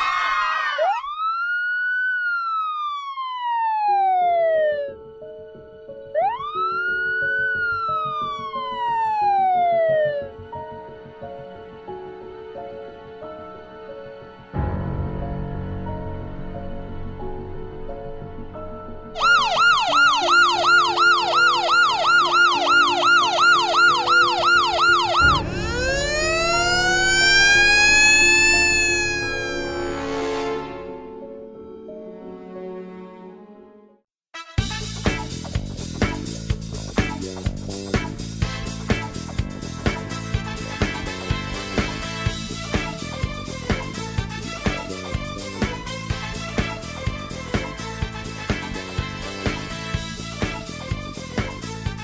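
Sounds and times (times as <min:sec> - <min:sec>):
police siren wailing: 0:00.0 - 0:05.1, 0:06.2 - 0:10.4, 0:19.2 - 0:30.6
soft background music: 0:03.2 - 0:34.0.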